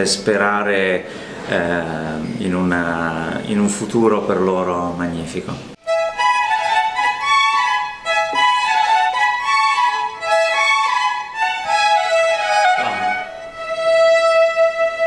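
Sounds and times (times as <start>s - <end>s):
violin melody: 5.8s - 15.0s.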